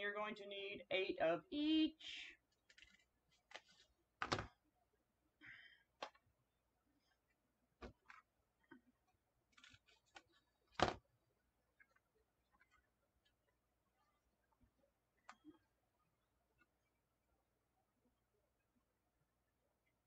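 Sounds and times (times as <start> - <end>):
ribbon rustling: 2.5 - 4.5, 9.4 - 11.0.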